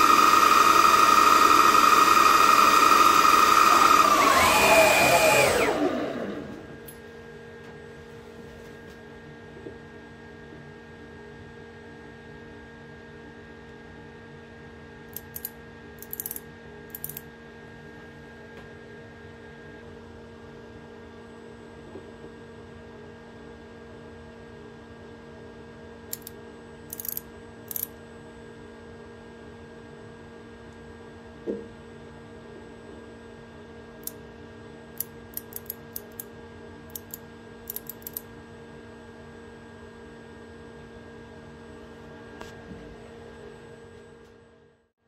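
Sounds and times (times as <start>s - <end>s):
electrical hum: 0.0s - 22.4s
micrometer ratchet clicking: 15.1s - 17.2s, 26.9s - 27.9s, 35.0s - 36.3s, 36.9s - 38.2s.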